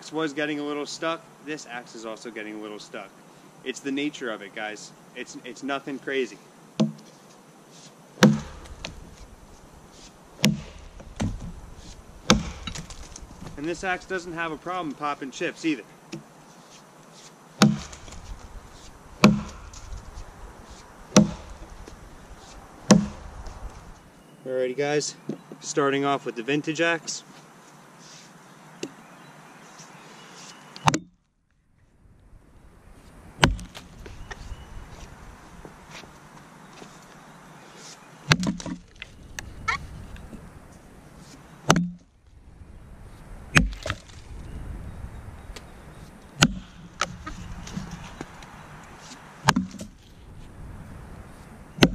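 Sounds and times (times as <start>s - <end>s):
axe chopping log: 6.8s - 7.1s, 8.2s - 9.2s, 10.4s - 13.9s, 17.6s - 18.5s, 19.2s - 20.0s, 21.1s - 21.9s, 22.9s - 23.4s, 33.4s - 33.9s, 38.3s - 38.9s, 41.6s - 42.0s, 43.6s - 44.2s, 46.4s - 48.5s, 49.4s - 49.9s.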